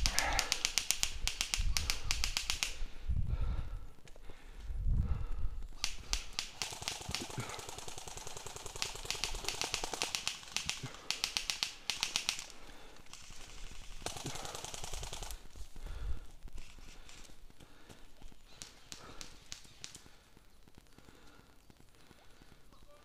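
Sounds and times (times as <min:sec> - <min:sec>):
airsoft guns firing automatic bursts: 0:00.0 - 0:02.8, 0:05.8 - 0:15.7.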